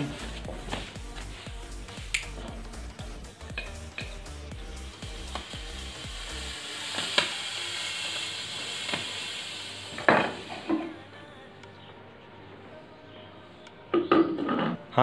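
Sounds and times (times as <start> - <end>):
music with bass beat: 0.0 - 8.8
smoke stick hissing: 0.0 - 11.3.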